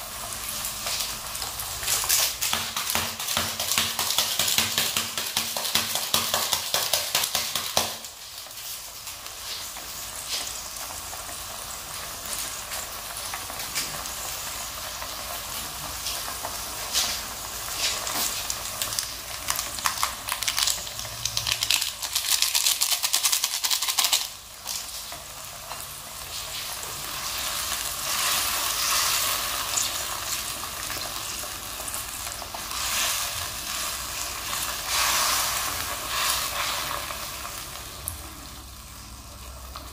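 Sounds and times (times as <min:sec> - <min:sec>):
food sizzling in hot oil: 0:00.0 - 0:39.9.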